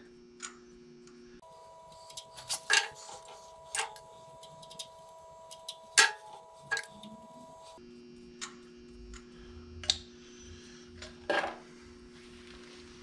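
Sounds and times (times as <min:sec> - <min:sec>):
faint two-note hum: 0:01.4 - 0:07.8.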